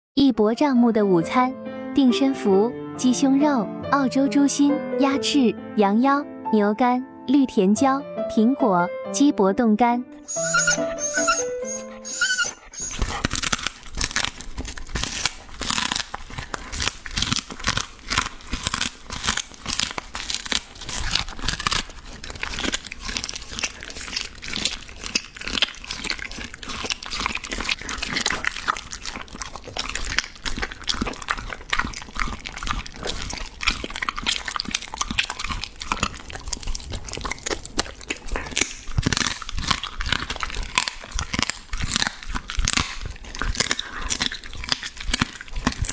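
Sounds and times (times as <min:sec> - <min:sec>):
dog chewing raw meat: 0:10.3 - 0:45.9.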